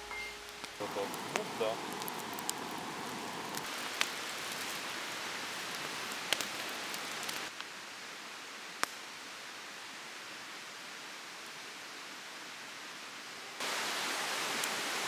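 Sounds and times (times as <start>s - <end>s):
campfire crackling and popping: 0.5s - 7.7s, 8.8s - 9.1s.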